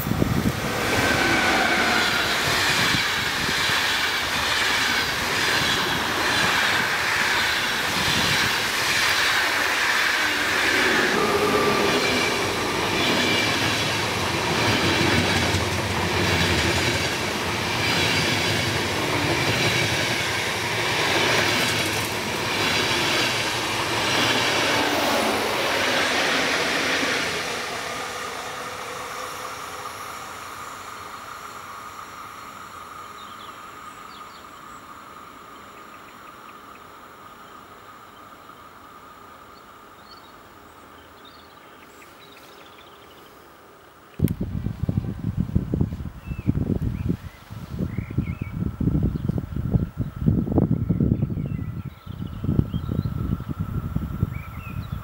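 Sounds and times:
passenger train passing: 0:00.0 - 0:41.1, 0:43.6 - 0:55.0
high wheel squeal: 0:00.6 - 0:04.0, 0:05.5 - 0:14.0.

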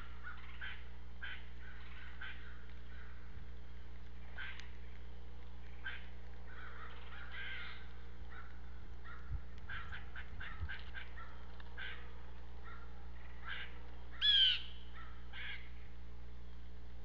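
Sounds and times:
birds chipping and calling: 0:00.0 - 0:15.9
steady low hum: 0:00.0 - 0:17.0
loud harsh bird call: 0:09.1 - 0:15.7.

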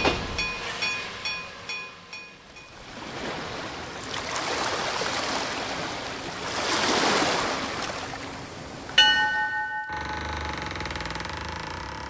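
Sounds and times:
sea waves washing onto beach: 0:02.7 - 0:09.0.

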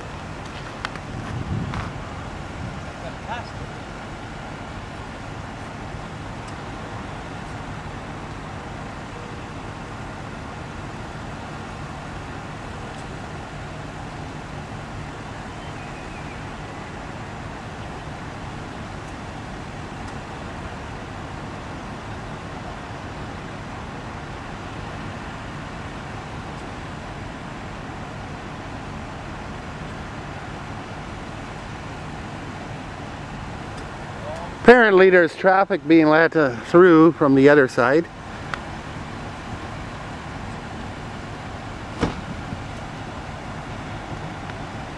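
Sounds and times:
highway traffic noise: 0:00.0 - 0:44.9
vehicle engines idling: 0:00.0 - 0:44.9
sharp knock: 0:42.0 - 0:42.3.

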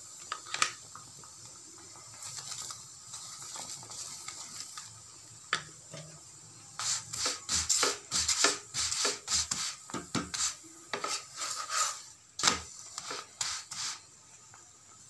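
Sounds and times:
spatula scraping on griddle: 0:06.8 - 0:14.1.

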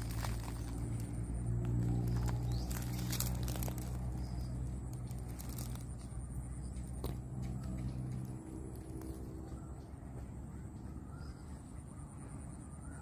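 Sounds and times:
sharp crackles and clicks: 0:00.0 - 0:06.2
steady low hum: 0:00.0 - 0:13.0.

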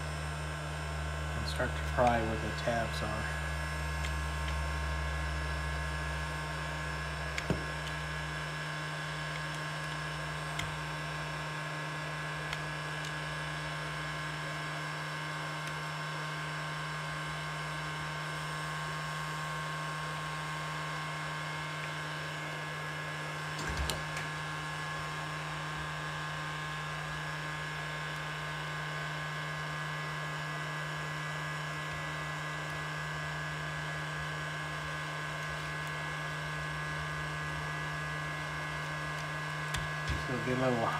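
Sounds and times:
heat gun humming: 0:00.0 - 0:14.8, 0:29.5 - 0:40.9.

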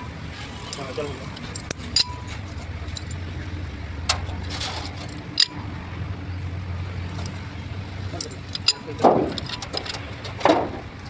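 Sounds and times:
metal gears clinking: 0:00.0 - 0:03.5, 0:04.1 - 0:05.7, 0:08.1 - 0:10.4.

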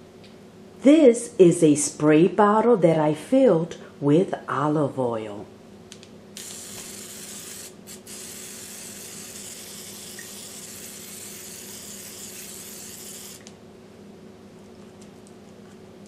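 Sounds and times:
faint air fryer hum: 0:00.0 - 0:16.0
spray bottle hissing: 0:06.4 - 0:13.5.

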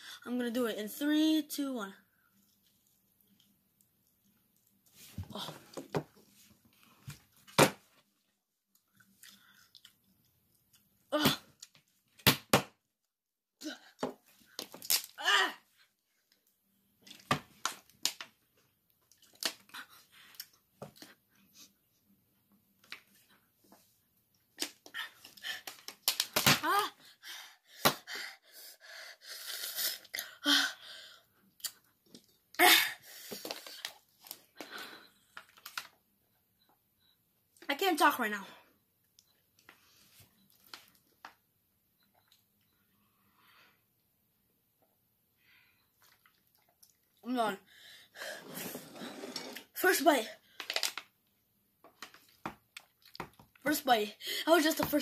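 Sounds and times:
boy gasping and wheezing: 0:26.6 - 0:31.3, 0:32.6 - 0:33.9, 0:54.2 - 0:54.6.

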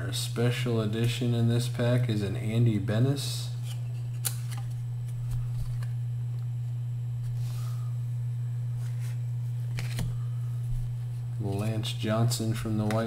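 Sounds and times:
steady low hum: 0:00.0 - 0:13.0
cards clicking and rustling: 0:03.6 - 0:05.9, 0:08.9 - 0:10.1.

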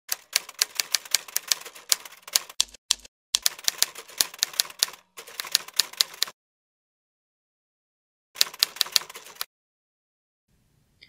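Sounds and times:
typewriter keys clacking: 0:08.4 - 0:09.5.

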